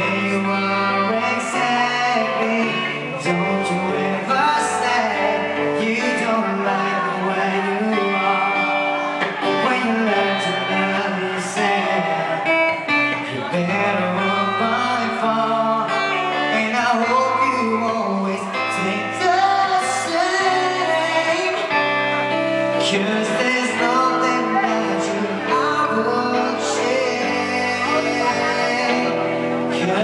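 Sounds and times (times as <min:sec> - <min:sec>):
acoustic guitar strumming: 0:00.0 - 0:30.0.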